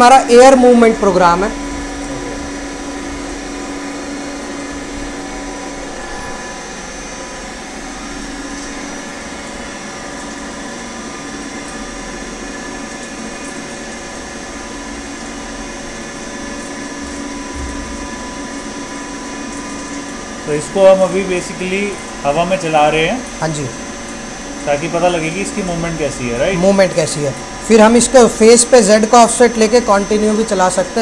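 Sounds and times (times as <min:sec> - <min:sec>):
machine whir and hum: 0:00.0 - 0:31.0.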